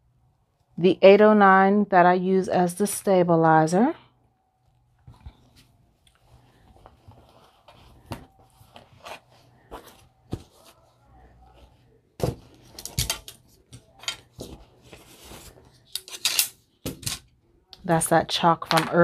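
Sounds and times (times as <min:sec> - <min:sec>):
fabric rustling and crinkling: 0:04.6 - 0:15.9.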